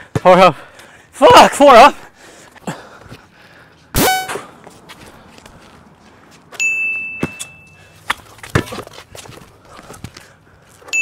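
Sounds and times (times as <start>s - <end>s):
basketball bouncing on concrete: 0.0s - 0.4s, 1.3s - 1.6s, 7.2s - 7.4s, 8.1s - 9.4s
bright bell chime: 6.6s - 7.8s.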